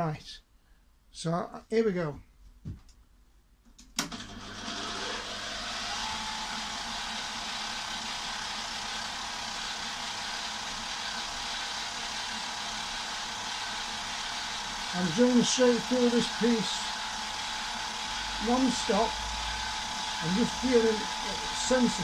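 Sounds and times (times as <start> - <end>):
milling machine motor whine: 4.1 - 22.0
high spindle whine: 4.5 - 22.0.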